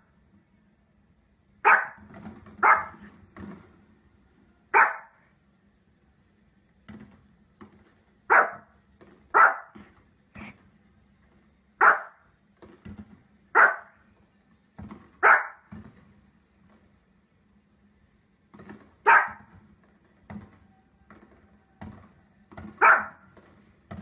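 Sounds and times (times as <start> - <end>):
small dog barking: 1.6 - 2.0, 2.6 - 3.0, 4.7 - 5.2, 8.3 - 8.7, 9.3 - 9.8, 11.8 - 12.2, 13.5 - 14.0, 15.2 - 15.7, 19.0 - 19.5, 22.7 - 23.3.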